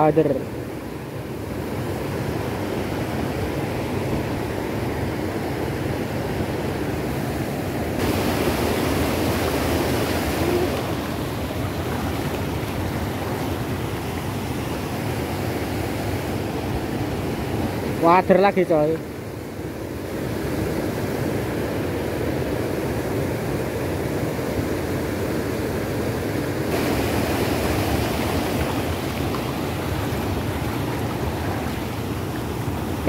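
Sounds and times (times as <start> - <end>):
water rushing over rocks: 0.0 - 25.6, 26.4 - 33.0.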